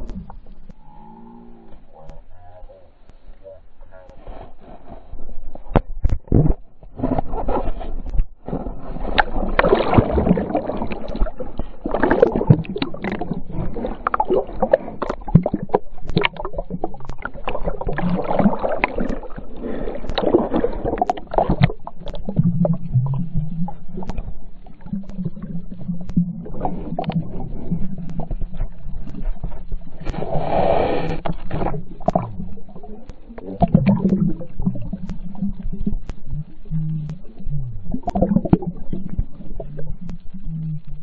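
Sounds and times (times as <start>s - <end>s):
muffled underwater gurgling: 0.0s - 41.0s
seawater sloshing and splashing: 7.0s - 22.4s.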